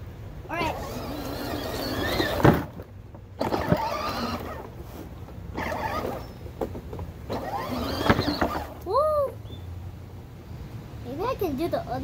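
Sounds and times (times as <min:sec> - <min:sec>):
toy car electric motors whining: 0:00.5 - 0:02.8, 0:03.4 - 0:04.8, 0:05.5 - 0:06.4, 0:07.3 - 0:08.8.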